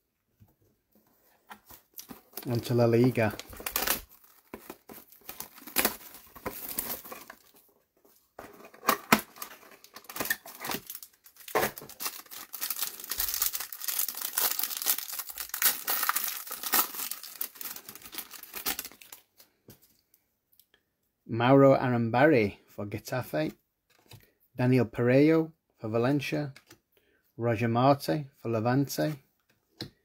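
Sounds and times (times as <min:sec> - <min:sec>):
plastic wrapping crinkling and tearing: 0:01.7 - 0:07.6, 0:08.5 - 0:19.3.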